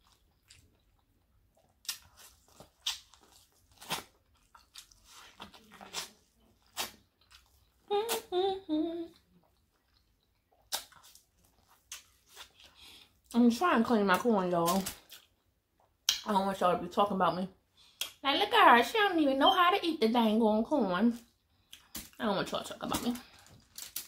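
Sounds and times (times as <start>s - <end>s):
chewing: 0.0s - 8.2s, 9.1s - 13.2s
person humming: 7.9s - 9.1s
crab shells cracking: 23.6s - 24.0s.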